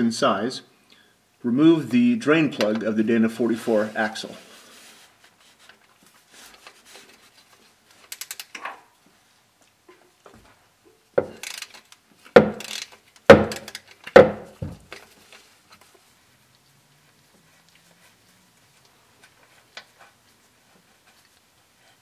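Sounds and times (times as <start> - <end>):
ratchet clicking: 8.0 - 8.6, 11.3 - 14.2.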